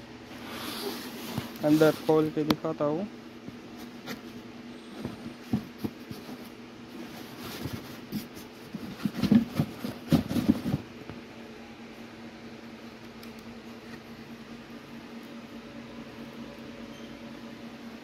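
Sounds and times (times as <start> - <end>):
cardboard box handling: 5.0 - 10.9.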